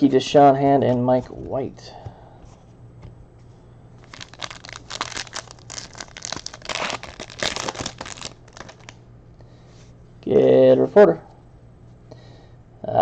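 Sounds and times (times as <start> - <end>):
foil wrapper crinkling: 4.0 - 9.0.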